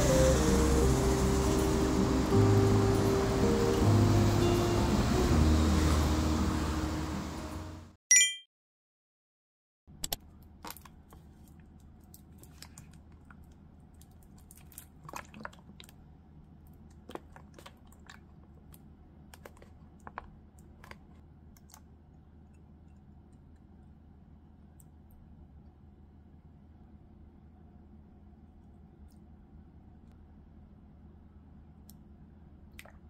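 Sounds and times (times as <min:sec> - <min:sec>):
milk pouring: 0:14.0 - 0:16.0.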